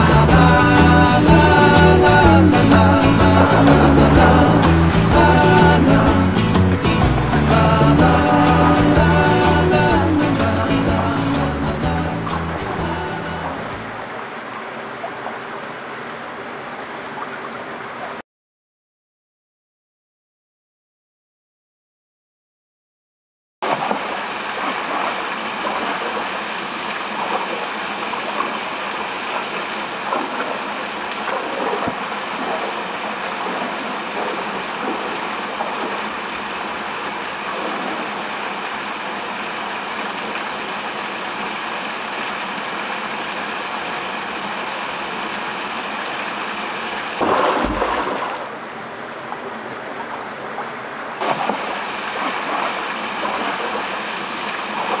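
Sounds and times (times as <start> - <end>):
bump with low rumble: 0.0 - 10.2
stream water running over rocks: 0.0 - 18.2, 23.6 - 55.0.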